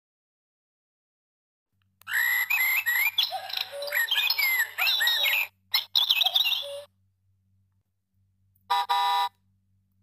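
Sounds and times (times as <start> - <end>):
recorded birdsong from toy speaker: 2.0 - 7.0.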